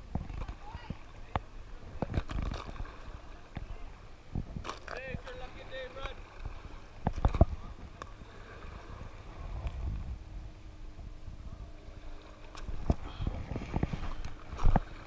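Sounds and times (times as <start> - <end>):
wind on microphone: 0.0 - 5.6, 6.3 - 15.0
microphone handling rumble: 0.0 - 11.8, 12.5 - 15.0.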